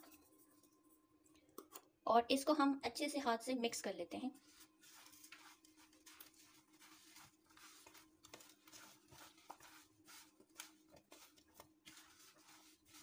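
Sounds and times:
potato sticks rustling in bowl: 0:04.4 - 0:13.0.

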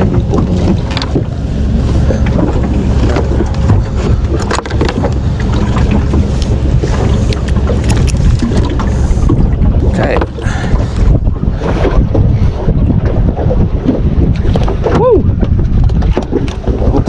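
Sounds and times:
knocks and clicks: 0:00.0 - 0:01.4, 0:02.0 - 0:09.5
wind rumbling on microphone: 0:00.0 - 0:17.0.

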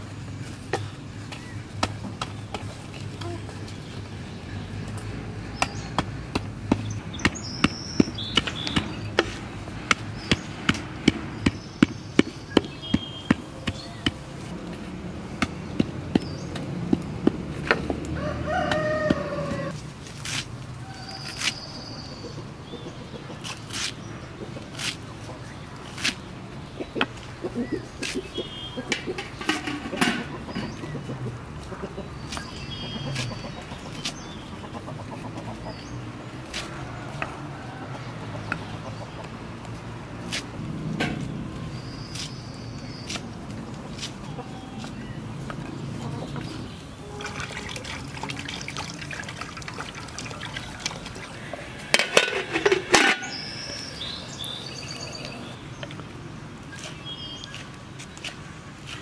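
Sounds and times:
small birds chirping: 0:00.3 - 0:14.6, 0:15.4 - 0:16.9, 0:17.6 - 0:37.2, 0:41.2 - 0:59.0
rooster crowing: 0:18.2 - 0:19.8
hens clucking: 0:26.6 - 0:39.7, 0:43.7 - 0:54.2.

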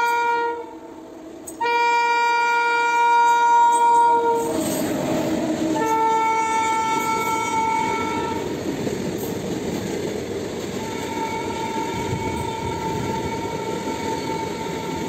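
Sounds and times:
locomotive horn blast: 0:00.0 - 0:04.8, 0:05.7 - 0:08.5, 0:10.8 - 0:15.0
freight train rumbling and rattling: 0:00.0 - 0:15.0.

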